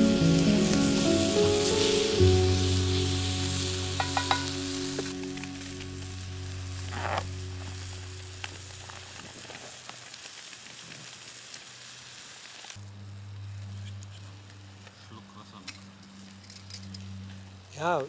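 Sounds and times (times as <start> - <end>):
low steady drone: 0.0 - 9.4, 12.8 - 18.0
vegetables sizzling in a pan: 0.0 - 12.8
wooden spatula knocking a pan: 4.0 - 4.5.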